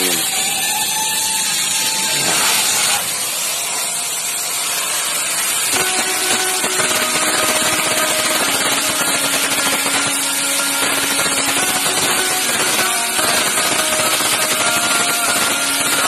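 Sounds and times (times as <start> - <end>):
compressed air hissing: 0.0 - 16.0
electric arc buzzing hum: 5.4 - 16.0.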